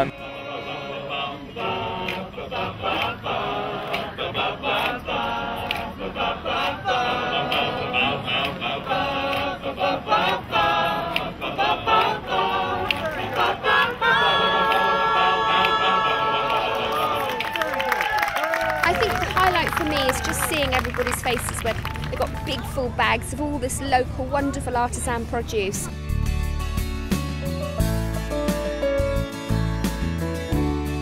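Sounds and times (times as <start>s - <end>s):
male choir singing in harmony: 0.0s - 17.6s.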